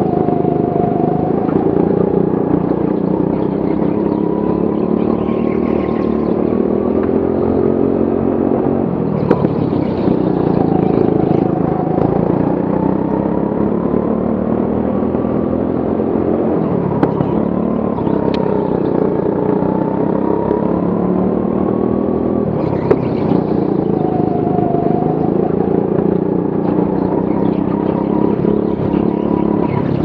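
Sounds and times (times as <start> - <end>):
go-kart engine revving: 0.0 - 30.0.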